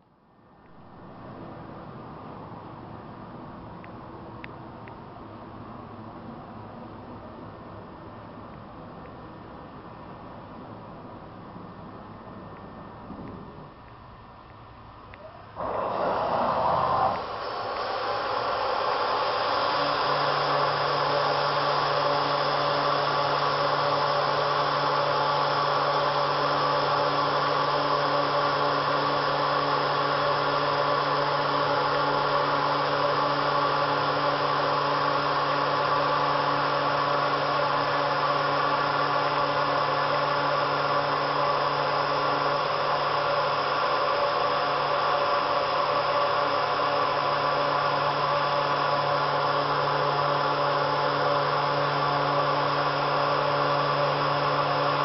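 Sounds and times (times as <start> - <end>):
cnc router whining: 15.2 - 55.0.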